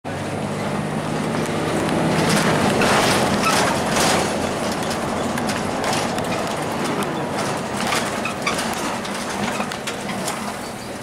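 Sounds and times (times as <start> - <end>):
road noise: 0.0 - 11.0
bus diesel engine running: 0.1 - 11.0
clicks and rattles: 2.2 - 10.6.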